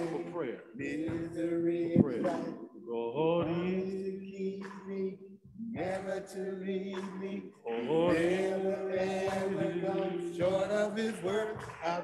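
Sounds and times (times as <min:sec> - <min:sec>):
group singing a slow hymn: 0:00.0 - 0:12.0.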